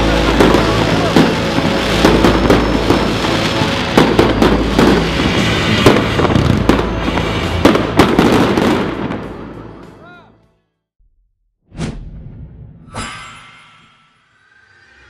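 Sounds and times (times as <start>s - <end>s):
fireworks bangs and crackles: 0.0s - 10.0s
background music: 0.0s - 10.8s.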